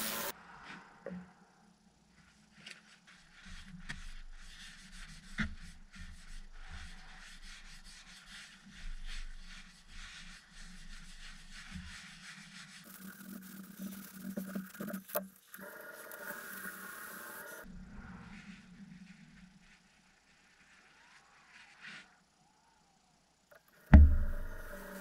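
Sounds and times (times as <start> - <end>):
towel rubbing on turning wood: 0.0 - 0.3, 2.7 - 17.7, 23.8 - 25.0
low hum: 15.5 - 21.5, 22.2 - 25.0.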